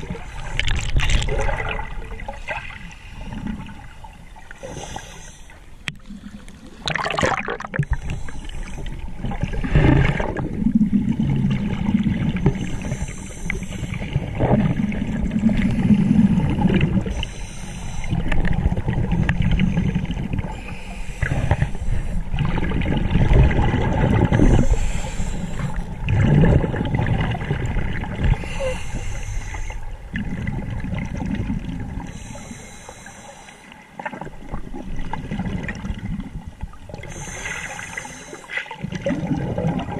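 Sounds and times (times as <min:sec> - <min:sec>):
exhaled bubbles gurgling: 0:00.0 - 0:05.2, 0:05.9 - 0:33.0, 0:33.9 - 0:39.9
regulator inhale hiss: 0:04.6 - 0:05.7, 0:07.8 - 0:09.0, 0:12.6 - 0:14.2, 0:17.1 - 0:18.4, 0:20.5 - 0:22.3, 0:24.3 - 0:25.9, 0:28.3 - 0:30.0, 0:32.0 - 0:33.8, 0:37.0 - 0:38.7.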